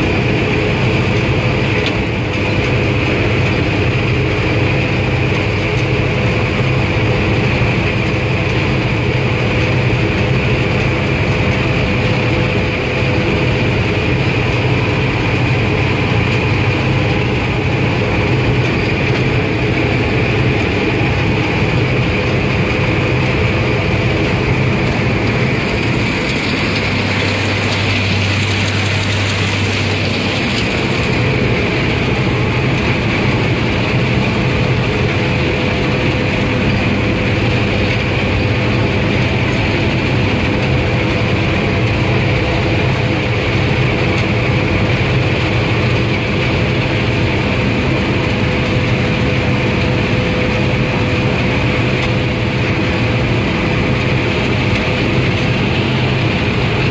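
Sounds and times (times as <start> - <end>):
combine harvester engine drone: 0.0 - 56.9.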